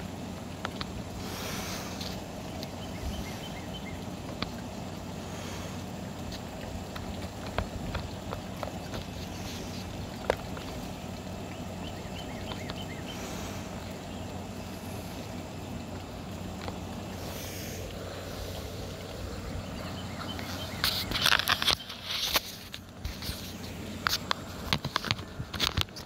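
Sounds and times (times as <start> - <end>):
low hum: 0.0 - 26.0.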